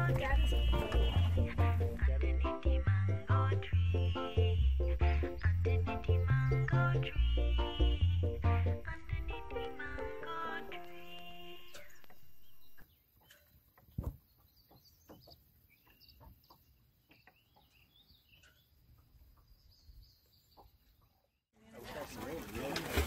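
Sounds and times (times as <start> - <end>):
music: 0.0 - 12.6
bird chirps: 11.5 - 21.4.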